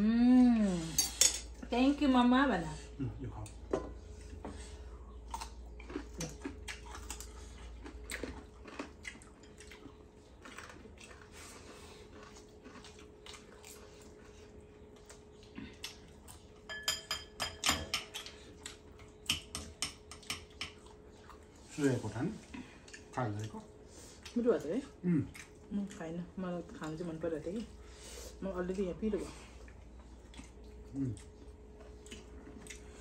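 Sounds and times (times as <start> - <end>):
faint steady hum: 0.0 - 33.0
chewing and crunching: 2.9 - 33.0
spoon clinking on dish: 16.7 - 18.2.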